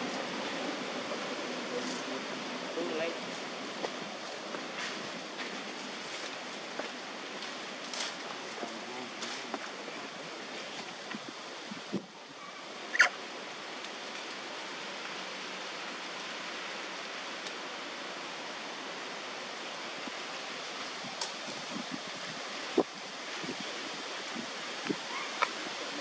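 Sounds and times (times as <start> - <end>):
outdoor background hiss: 0.0 - 26.0.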